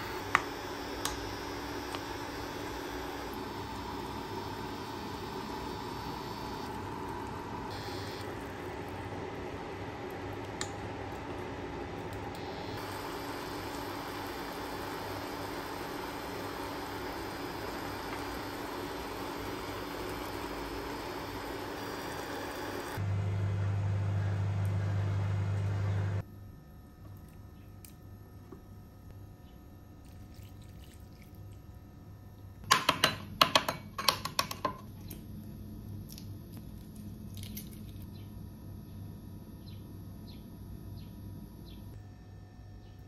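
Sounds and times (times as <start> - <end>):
loud low hum: 0.0 - 26.5.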